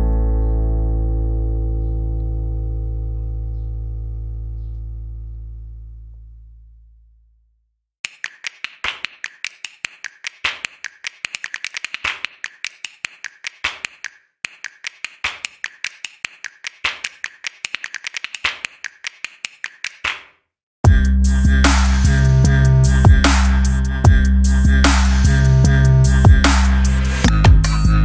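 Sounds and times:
pencil tapping on paper: 8.0 - 20.3.

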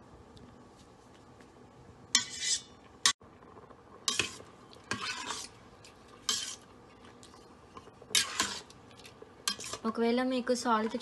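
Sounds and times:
metal spoon scraping pot: 2.2 - 2.8, 4.1 - 5.6, 6.2 - 6.7, 8.1 - 8.8, 9.4 - 9.9.

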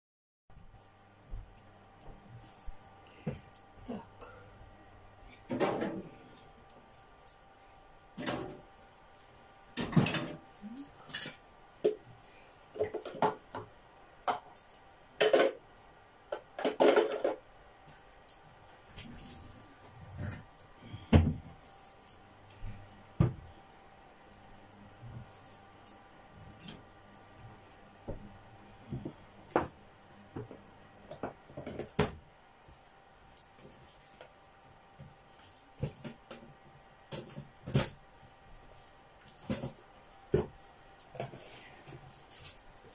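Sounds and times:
kitchen things knocking and clattering: 9.8 - 10.4, 15.2 - 15.6, 16.3 - 17.4.

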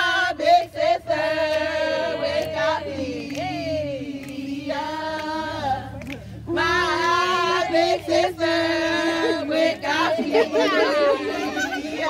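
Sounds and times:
group singing long notes: 0.0 - 12.0.

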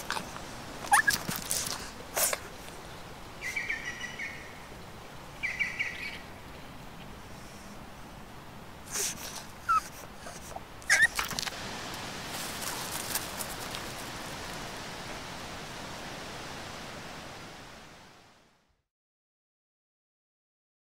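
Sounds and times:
dog whining: 0.0 - 2.5, 8.9 - 11.5
dog scuffling on leaves: 0.0 - 2.6, 10.9 - 14.7
bird chirping: 2.7 - 6.8.

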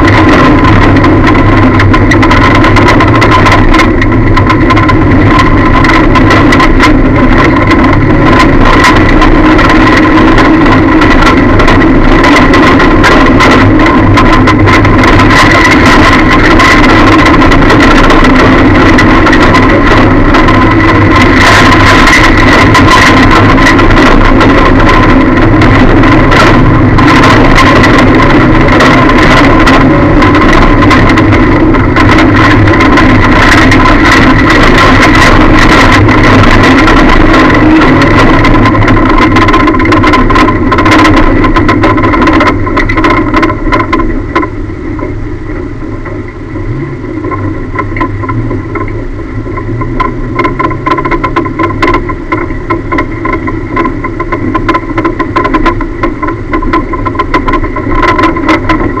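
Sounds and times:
rattling and knocking: 0.0 - 45.2, 45.9 - 59.0
race car engine from inside cabin: 0.0 - 59.0.

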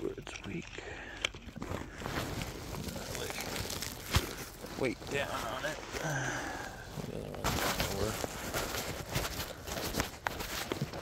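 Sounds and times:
camera handling rustle: 0.3 - 4.8, 7.7 - 11.0
man's wordless sigh: 5.9 - 7.0.

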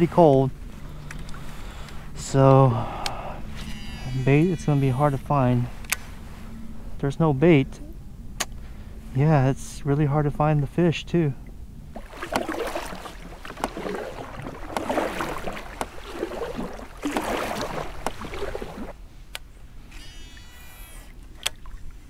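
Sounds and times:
water splashing against boat hull: 11.9 - 19.0.

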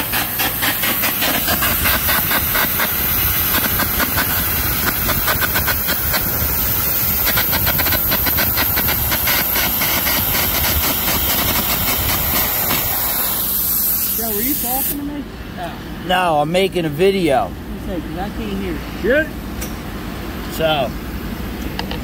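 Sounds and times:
compressed air hissing: 0.0 - 15.1
arc crackling: 0.2 - 15.0.

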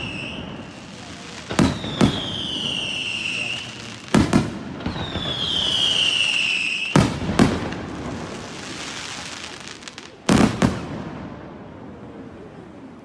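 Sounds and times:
firework falling whistle: 0.0 - 3.9, 4.8 - 7.5
fireworks crackling: 0.0 - 12.2.

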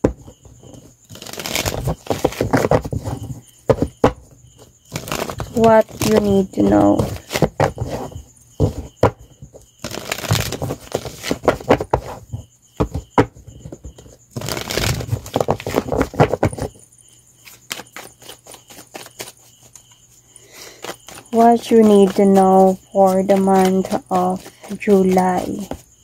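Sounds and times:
cards being shuffled: 0.7 - 3.9, 4.9 - 8.7, 9.8 - 12.2, 14.4 - 16.8, 17.4 - 19.9, 20.6 - 25.9.

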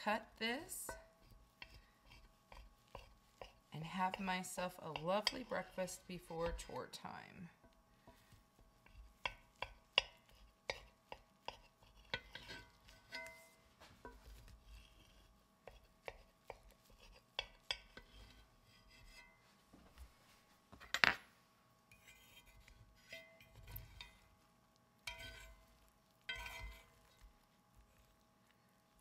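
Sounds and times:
knife scraping iron pan: 0.8 - 6.8, 8.8 - 19.4, 21.9 - 24.2, 25.1 - 25.6, 26.3 - 27.2.

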